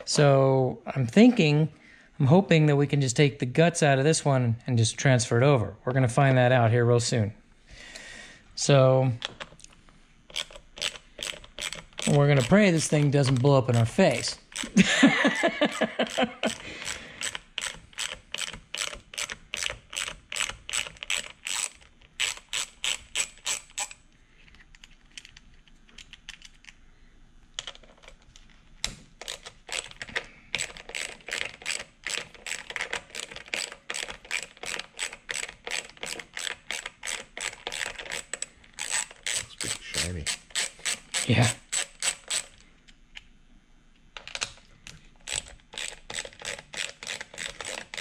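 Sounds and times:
hand ratchet clicking: 0:10.3 - 0:14.8, 0:15.7 - 0:24.0, 0:29.2 - 0:42.6, 0:45.2 - 0:48.0.

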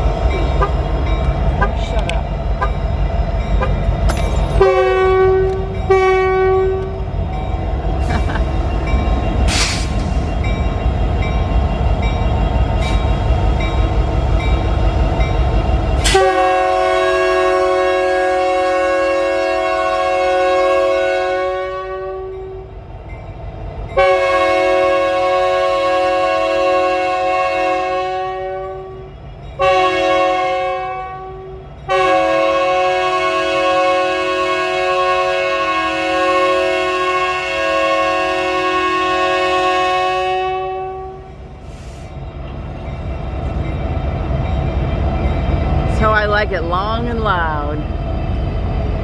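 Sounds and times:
locomotive air horn blasts: 0:04.6 - 0:07.0, 0:16.0 - 0:22.6, 0:24.0 - 0:29.0, 0:29.6 - 0:41.3.

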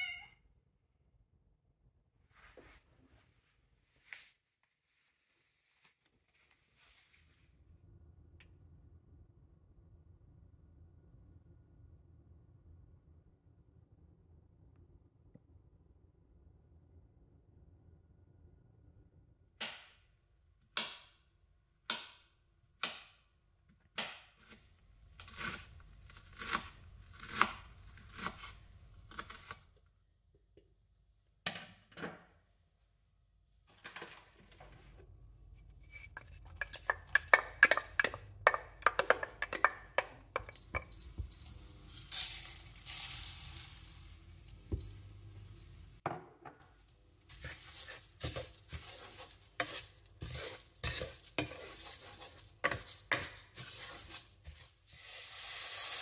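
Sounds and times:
rice sizzling in hot oil: 0:41.2 - 0:46.0, 0:47.3 - 0:56.0
knife cutting on wooden board: 0:47.4 - 0:54.6.

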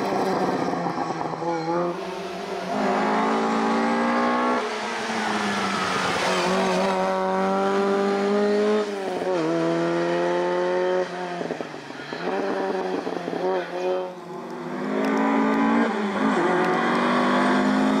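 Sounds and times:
race car engine accelerating: 0:02.6 - 0:11.0, 0:14.8 - 0:18.0.

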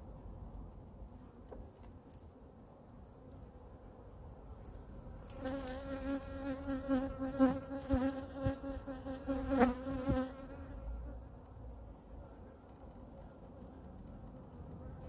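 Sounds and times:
honey bee buzzing: 0:05.3 - 0:11.1.

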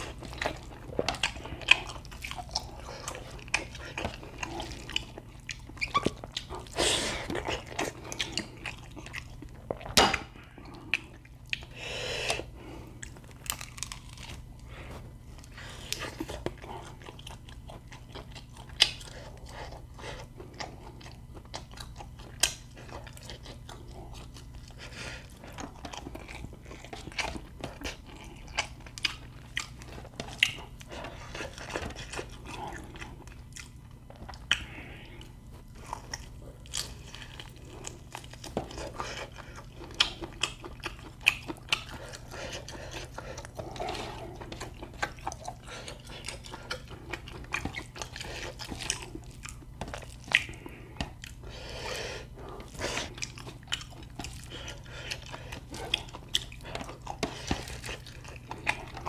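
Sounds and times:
chewing and crunching food: 0:00.0 - 0:59.0
faint low hum: 0:00.0 - 0:59.0.

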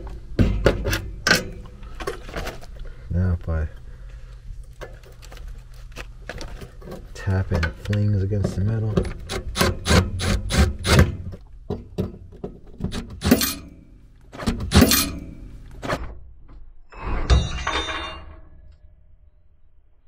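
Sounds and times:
impact driver hammering on screw: 0:09.1 - 0:11.3.

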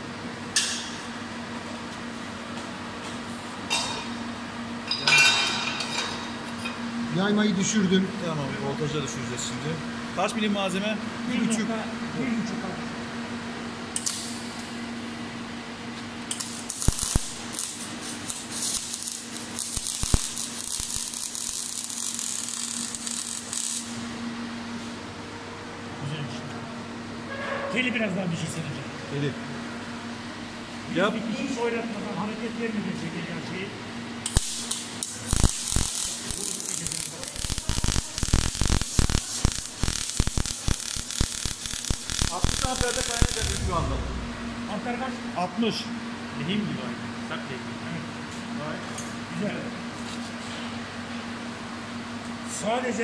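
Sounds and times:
sharp welding pops: 0:13.9 - 0:14.4, 0:16.3 - 0:24.0, 0:34.2 - 0:44.5
welding arc crackling and hissing: 0:16.2 - 0:24.1, 0:34.2 - 0:44.5
steady low hum: 0:28.3 - 0:46.4.

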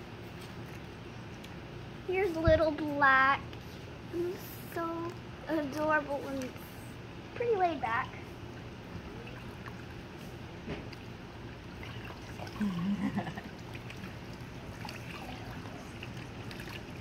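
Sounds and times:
water trickling and splashing: 0:08.5 - 0:17.0.

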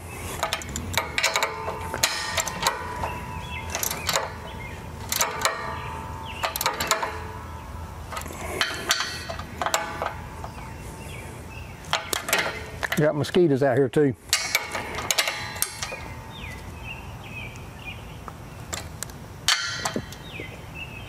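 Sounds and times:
ratchet wrench clicking: 0:06.4 - 0:07.1.

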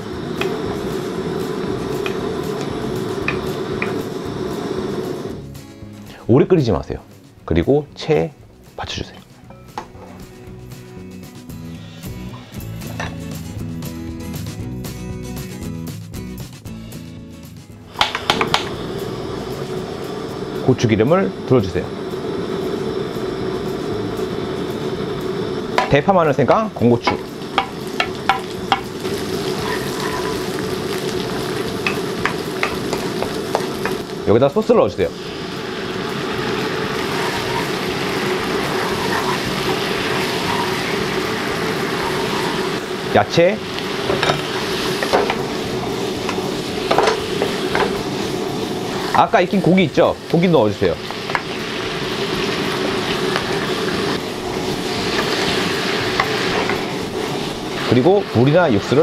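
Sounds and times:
food sizzling in hot oil: 0:00.0 - 0:06.2, 0:17.7 - 0:59.0
spatula tapping a pan: 0:03.3 - 0:04.0, 0:18.0 - 0:18.7, 0:27.1 - 0:29.0, 0:31.8 - 0:34.0, 0:51.3 - 0:51.5.

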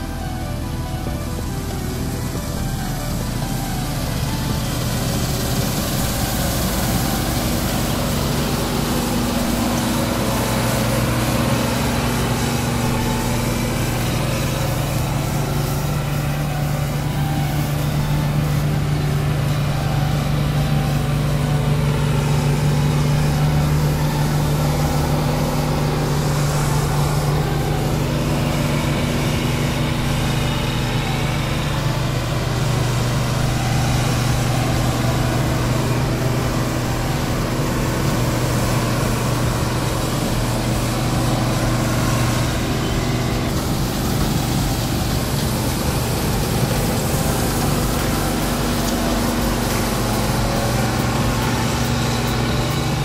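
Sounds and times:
combine harvester engine drone: 0:00.0 - 0:53.0
cutting and threshing noise: 0:00.0 - 0:53.0.

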